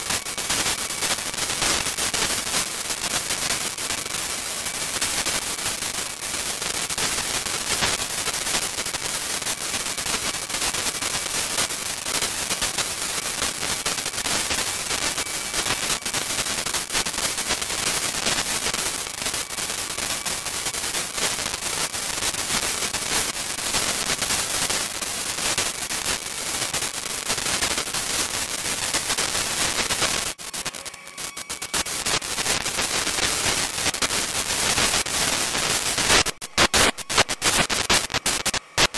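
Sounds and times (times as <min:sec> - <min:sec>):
crackling radio static: 0:00.0 - 0:38.9.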